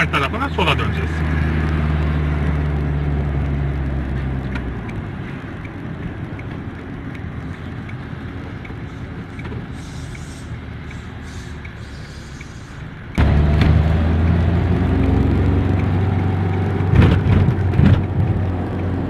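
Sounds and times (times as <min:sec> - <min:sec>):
turn signal ticking: 0:00.0 - 0:18.9
car engine hum: 0:00.0 - 0:19.0
road noise: 0:00.0 - 0:19.0.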